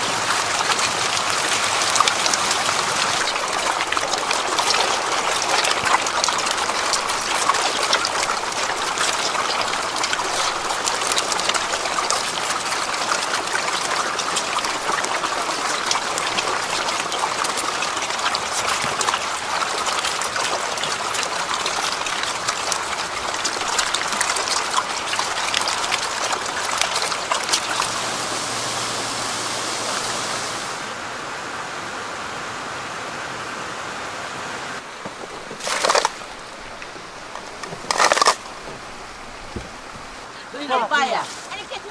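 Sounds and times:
eels splashing in water: 0.0s - 28.2s, 34.9s - 40.3s
aerators churning water: 0.0s - 30.9s, 34.8s - 41.9s.

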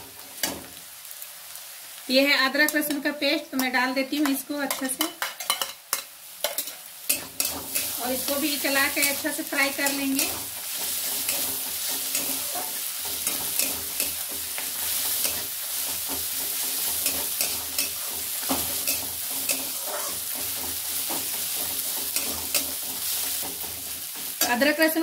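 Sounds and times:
onions sizzling in oil: 0.0s - 25.0s
spatula scraping and clinking pan: 4.7s - 8.0s, 9.0s - 24.6s.

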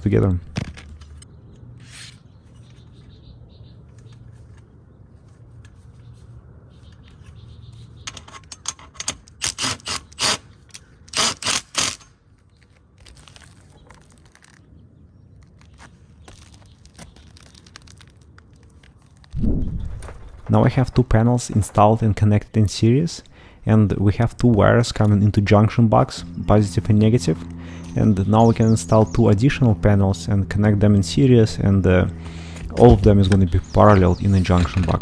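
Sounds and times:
hand tools clicking and scraping metal: 8.1s - 12.2s
faint low hum: 12.6s - 35.0s.

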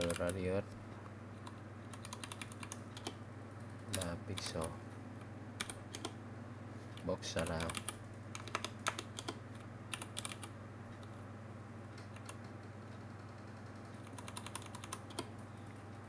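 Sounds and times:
typing on computer keyboard: 0.0s - 0.4s, 1.4s - 3.2s, 5.6s - 6.2s, 7.4s - 10.5s, 12.0s - 15.3s
steady low hum: 0.0s - 16.0s.

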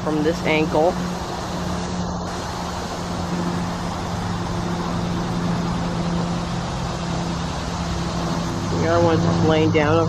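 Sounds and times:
even rushing noise: 0.0s - 10.0s
low mechanical drone: 0.0s - 10.0s.

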